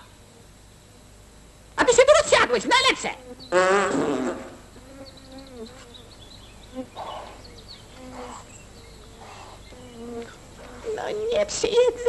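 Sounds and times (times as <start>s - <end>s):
insect buzzing: 0.0s - 12.0s
faint bird chirps: 4.7s - 11.1s.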